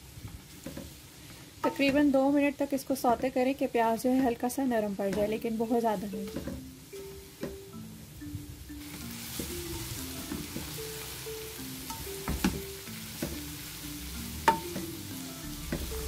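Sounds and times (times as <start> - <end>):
minced beef sizzling in wok: 0.0 - 8.0, 8.6 - 16.0.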